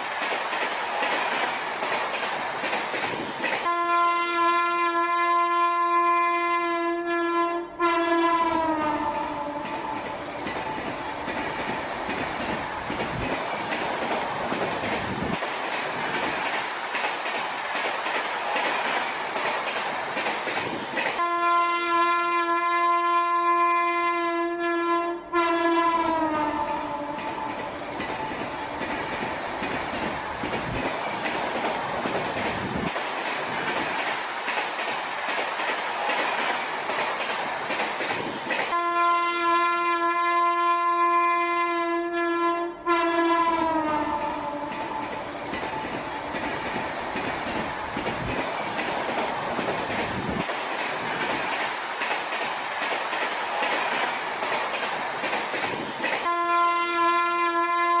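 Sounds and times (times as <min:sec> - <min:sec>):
train rumbling and clattering: 0:00.0 - 0:58.0
train horn: 0:03.6 - 0:10.1, 0:21.2 - 0:27.8, 0:38.7 - 0:45.2, 0:56.2 - 0:58.0.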